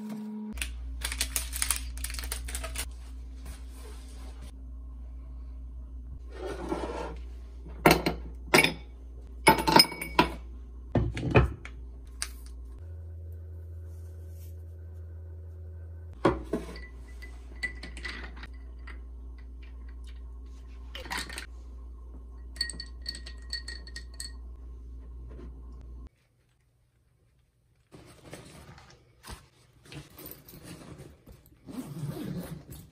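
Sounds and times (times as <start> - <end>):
low hum: 0.0 - 26.1
glass jars knocking and clinking: 9.5 - 10.4, 22.4 - 24.6.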